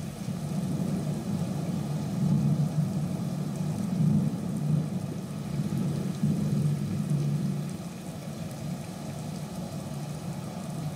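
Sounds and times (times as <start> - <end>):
low rolling storm rumble: 0.0 - 8.1.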